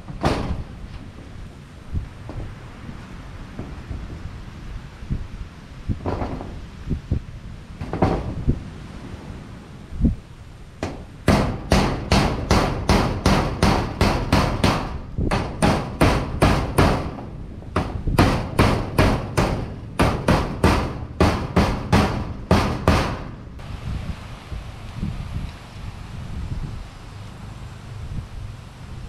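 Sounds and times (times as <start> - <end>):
hammer driving nails: 10.8 - 23.3.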